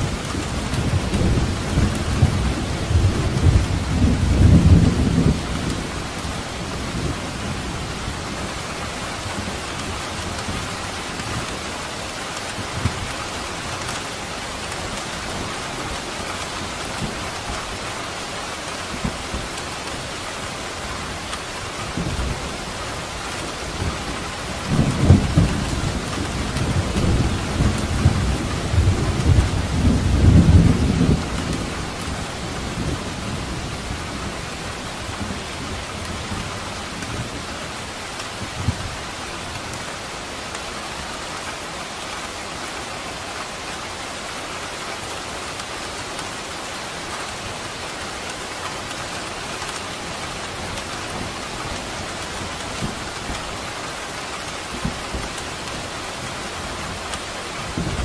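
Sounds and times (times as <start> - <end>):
steady rain: 0.0 - 58.0.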